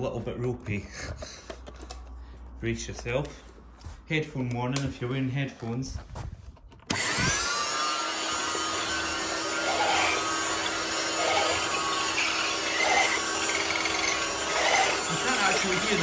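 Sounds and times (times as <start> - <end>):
vacuum cleaner rasping drone: 6.9 - 16.0.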